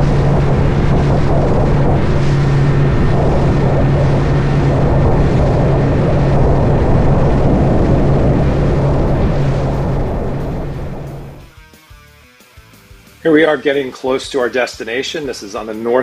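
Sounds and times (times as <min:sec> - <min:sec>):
outboard motor running: 0:00.0 - 0:11.4
wind and water rushing: 0:00.0 - 0:11.4.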